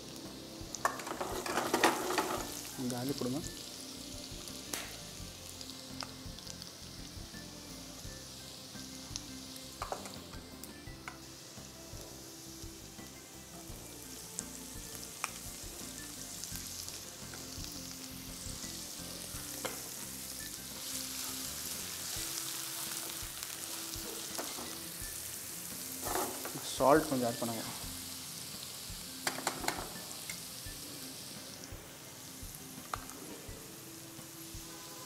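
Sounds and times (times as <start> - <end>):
food sizzling in hot oil: 0.0 - 35.0.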